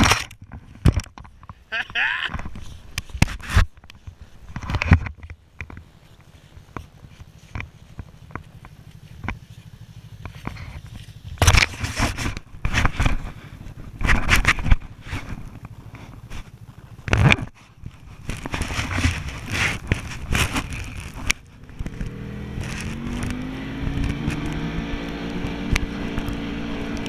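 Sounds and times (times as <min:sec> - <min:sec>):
clicks and knocks on camera housing: 0:00.0 - 0:01.6, 0:02.3 - 0:05.9
scraping and rubbing on camera: 0:00.0 - 0:24.6.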